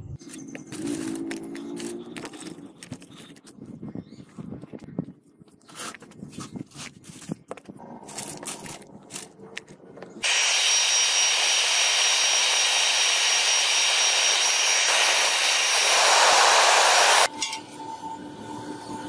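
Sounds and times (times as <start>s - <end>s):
electric air blower rushing: 10.2s - 17.3s
faint high whine: 10.2s - 19.0s.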